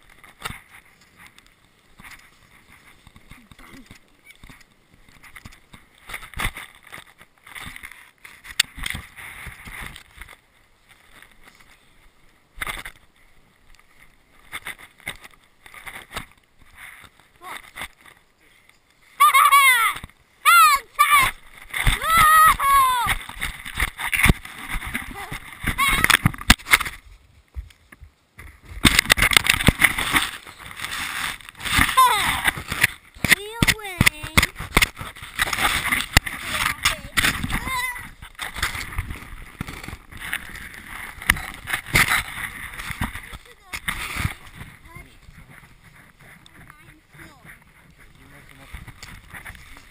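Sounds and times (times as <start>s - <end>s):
snow crunching and scraping: 0.0s - 49.9s.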